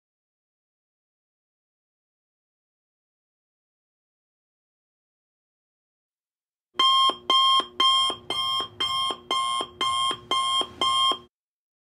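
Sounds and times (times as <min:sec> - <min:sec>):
electronic alarm beeping: 0:06.8 - 0:11.3.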